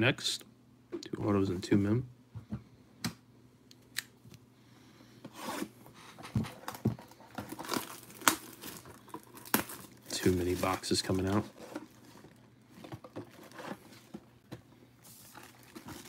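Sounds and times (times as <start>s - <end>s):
plastic wrap tearing and crinkling: 6.6s - 12.4s, 15.1s - 16.0s.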